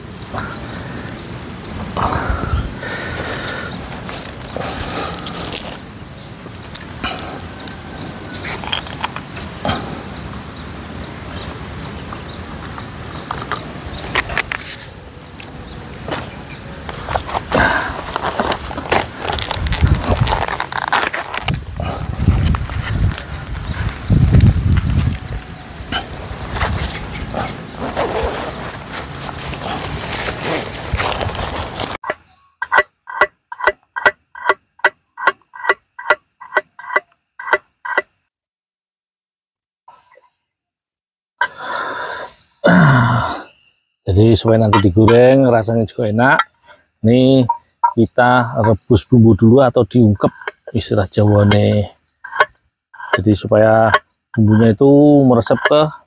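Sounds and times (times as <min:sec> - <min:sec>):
plastic bottle crinkling and clicking: 0:03.9 - 0:05.8, 0:08.5 - 0:09.3, 0:16.1 - 0:21.6.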